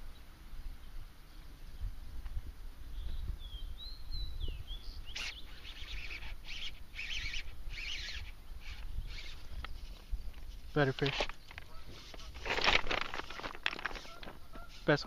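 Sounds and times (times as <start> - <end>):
wind rumble on microphone: 0.0 - 5.7
short buzzy bird chirps: 2.9 - 9.9
songbirds whistling: 2.9 - 9.9.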